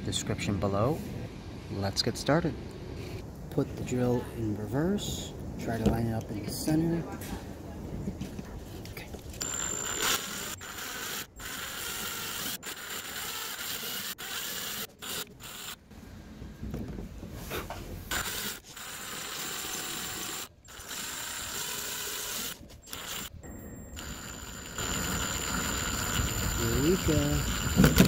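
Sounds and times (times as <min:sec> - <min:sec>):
power drill grinding metal: 0:09.4 - 0:15.8, 0:18.1 - 0:23.3, 0:23.9 - 0:28.0.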